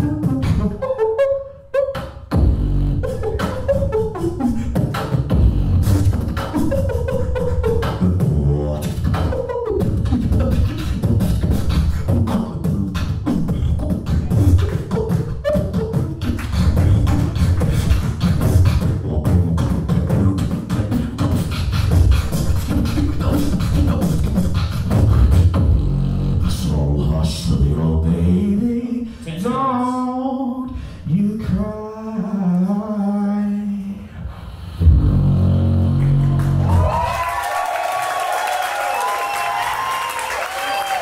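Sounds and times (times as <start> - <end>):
hummed melody: 0.0 - 26.4, 34.8 - 36.8
beatboxing into a microphone: 0.0 - 37.2.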